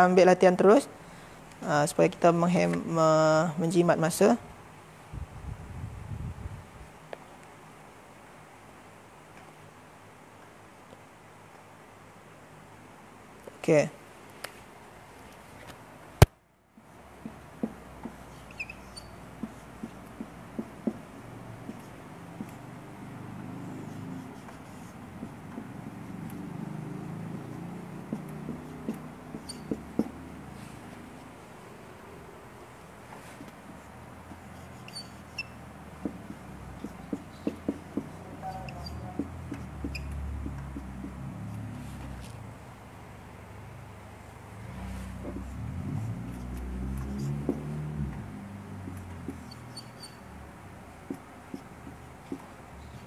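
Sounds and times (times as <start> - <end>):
marker writing on whiteboard: 16.8 - 31.4, 33.0 - 42.4, 44.6 - 53.0
marker tip squeaking: 18.1 - 20.0, 28.2 - 30.2, 33.8 - 40.9, 47.0 - 47.6, 48.9 - 50.3.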